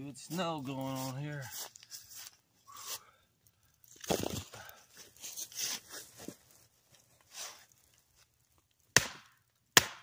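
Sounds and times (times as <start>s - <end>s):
axe chopping firewood: 8.9s - 10.0s.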